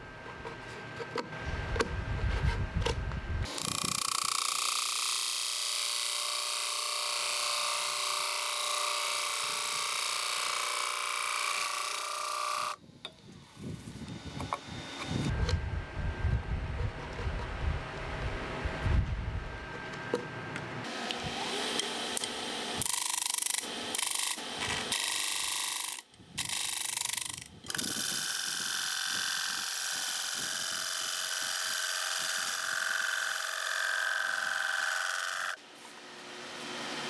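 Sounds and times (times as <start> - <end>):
power tool cutting wood: 3.5 - 12.8, 20.8 - 37.0.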